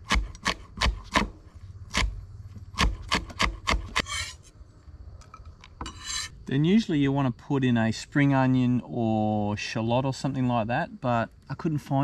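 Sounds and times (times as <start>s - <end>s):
knife scraping across board: 2.8s - 4.5s, 5.8s - 6.4s.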